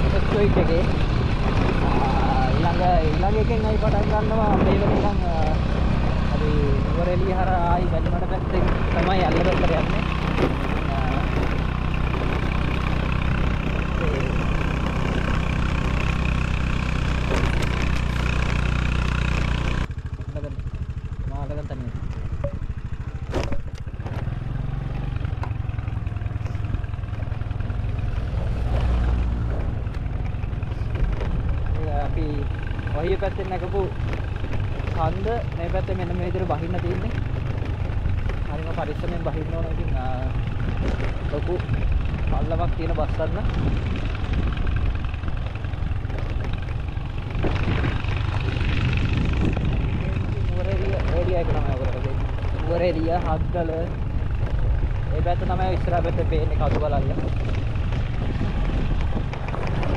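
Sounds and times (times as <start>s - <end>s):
vehicle engine rumbling: 0.0s - 59.9s
sharp clatter: 7.9s - 24.4s.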